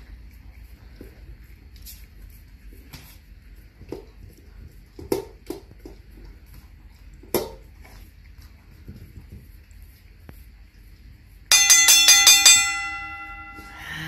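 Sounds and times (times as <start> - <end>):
dog eating from bowl: 0.0 - 12.2
muzzle clinking metal bowl: 11.5 - 14.0.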